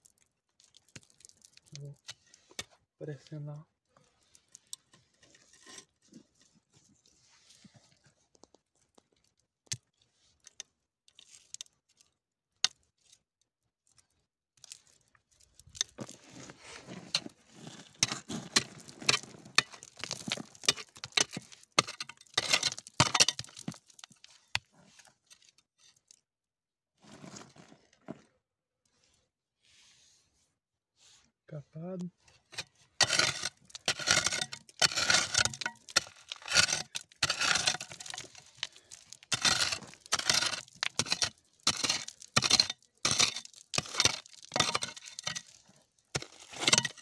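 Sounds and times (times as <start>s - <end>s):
small stones clicking: 0.0s - 2.0s, 18.0s - 24.2s, 33.0s - 47.0s
scraping gravelly clay: 4.0s - 13.3s, 14.6s - 26.2s, 27.0s - 28.4s, 31.8s - 47.0s.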